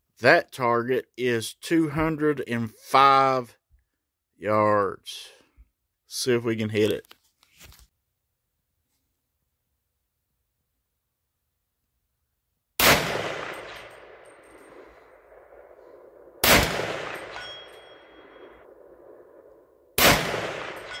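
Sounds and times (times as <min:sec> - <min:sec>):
rifle shots with echo: 0:12.8 - 0:21.0
steel target ringing: 0:16.5 - 0:18.9, 0:20.3 - 0:21.0.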